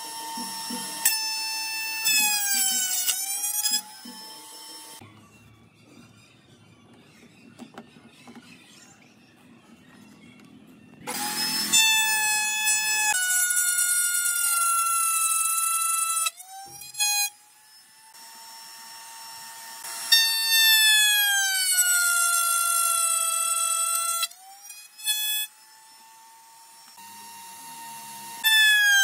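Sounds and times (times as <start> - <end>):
table saw cutting wood: 0.0 - 5.0, 11.1 - 29.0.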